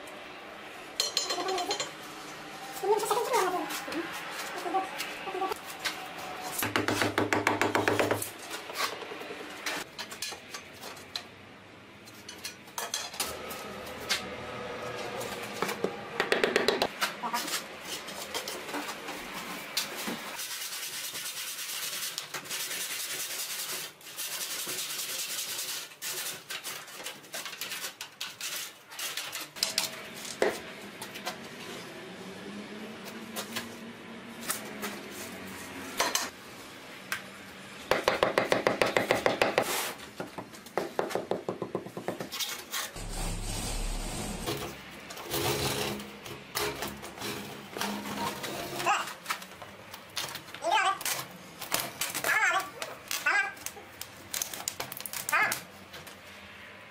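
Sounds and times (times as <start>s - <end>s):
concrete blocks scraping: 42.2s - 49.2s
rapid rasping strokes: 42.9s - 46.0s.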